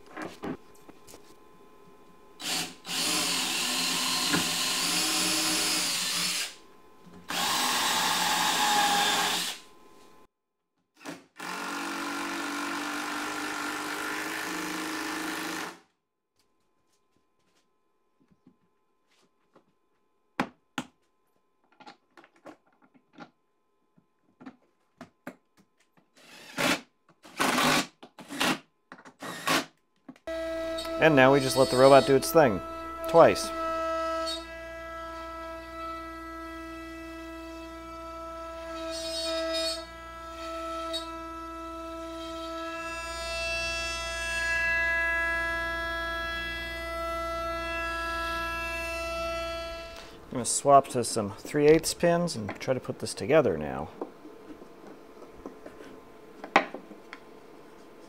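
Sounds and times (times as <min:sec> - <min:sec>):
router spindle high-pitched whine: 0:02.4 - 0:06.6, 0:30.3 - 0:42.0.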